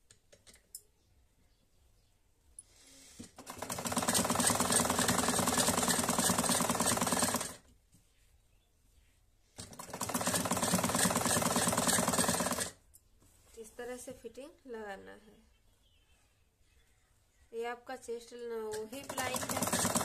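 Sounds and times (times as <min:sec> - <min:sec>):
sewing machine needle clatter: 0:18.7 - 0:20.0.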